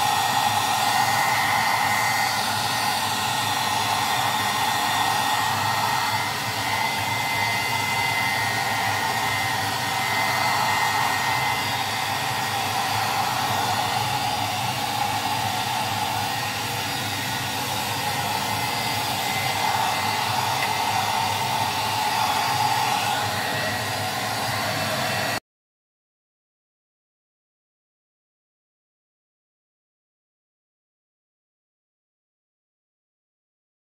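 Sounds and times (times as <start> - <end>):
hair dryer blowing: 0.0 - 25.4.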